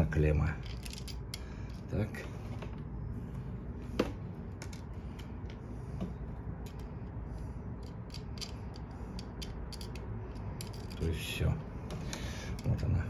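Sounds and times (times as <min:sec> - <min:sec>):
small metallic clicks: 0:07.7 - 0:11.1.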